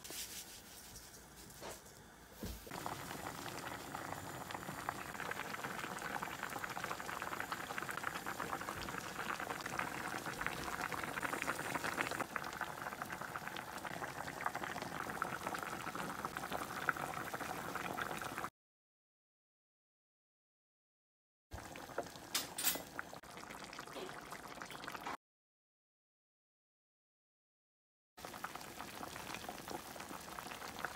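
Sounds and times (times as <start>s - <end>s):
soup boiling and bubbling: 2.0s - 18.5s, 21.5s - 25.2s, 28.2s - 30.9s.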